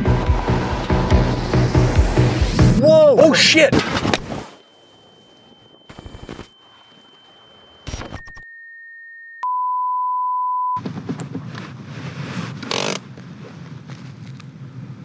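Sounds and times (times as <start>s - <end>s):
high steady whine: 0.0s - 8.5s
low held tone: 4.5s - 10.8s
test-tone beep: 4.6s - 10.8s.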